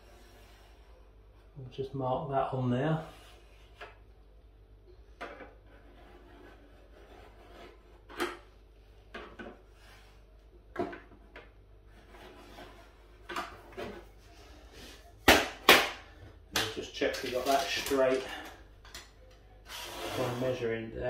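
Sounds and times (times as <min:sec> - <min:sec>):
pencil scraping on board: 0:05.6 - 0:08.2, 0:11.9 - 0:14.0.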